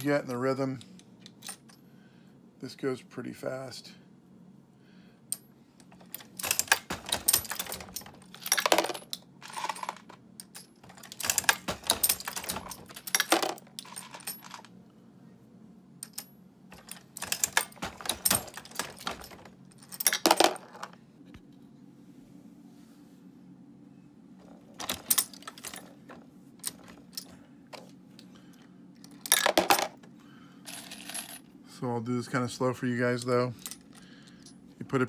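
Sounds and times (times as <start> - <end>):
faint low hum: 0.0 - 35.0
reloading press metallic clanking: 6.0 - 14.7, 16.0 - 20.7.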